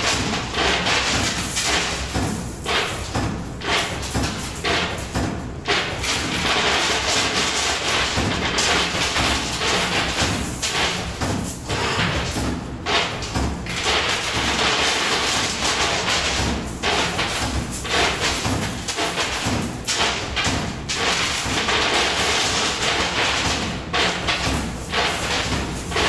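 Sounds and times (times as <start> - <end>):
coin clatter: 6.0 - 12.4, 13.7 - 20.2, 20.9 - 26.0.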